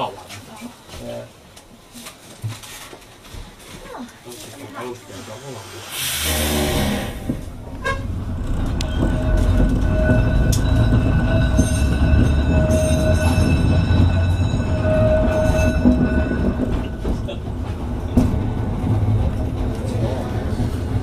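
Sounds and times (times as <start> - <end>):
tram wheels rumbling on rail: 5.8 - 21.0.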